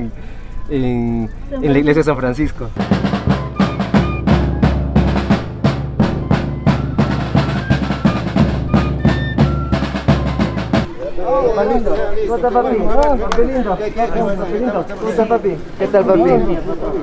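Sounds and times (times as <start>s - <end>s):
snare and bass drum rhythm: 2.7s - 10.9s
high wind instrument notes: 2.7s - 11.0s.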